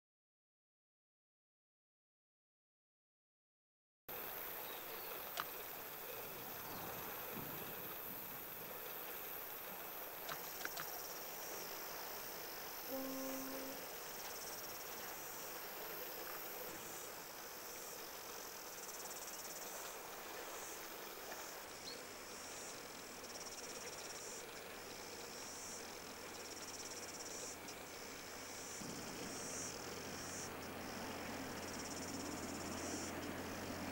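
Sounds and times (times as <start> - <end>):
outdoor background noise: 4.1 - 33.9
insects shrill drone: 4.2 - 33.9
low tone: 12.9 - 13.8.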